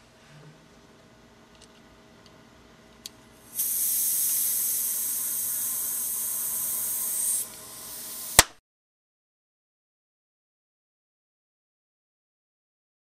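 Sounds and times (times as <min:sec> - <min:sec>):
gas hissing from charger: 0:03.4 - 0:08.5
sharp click: 0:08.4 - 0:08.6.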